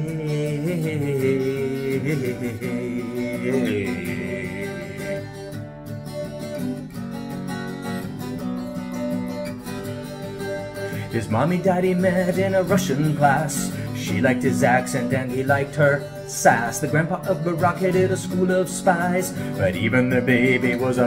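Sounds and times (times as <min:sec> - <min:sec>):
man singing drawn-out notes: 0:00.0 - 0:05.6, 0:11.0 - 0:21.0
acoustic guitar strumming chords: 0:00.0 - 0:21.0.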